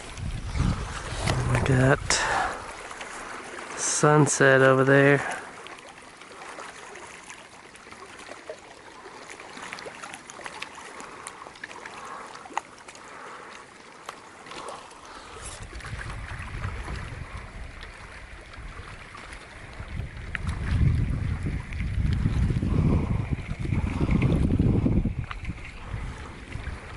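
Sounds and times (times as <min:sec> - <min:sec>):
wind buffeting microphone: 0:00.0 - 0:04.0, 0:15.2 - 0:26.9
water lapping: 0:00.0 - 0:26.9.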